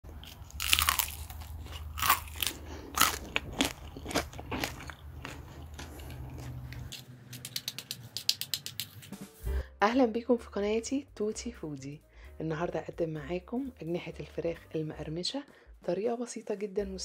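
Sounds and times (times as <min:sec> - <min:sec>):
fried chicken crunching: 0:00.1 - 0:09.0.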